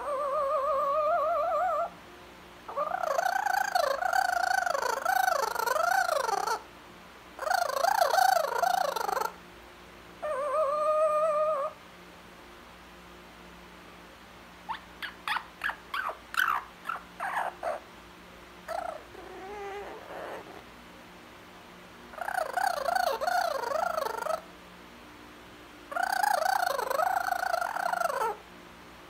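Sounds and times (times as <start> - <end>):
parrot calling: 0.0 - 2.0, 2.7 - 6.7, 7.4 - 9.4, 10.2 - 11.8, 14.6 - 17.9, 18.6 - 20.7, 22.1 - 24.5, 25.9 - 28.4.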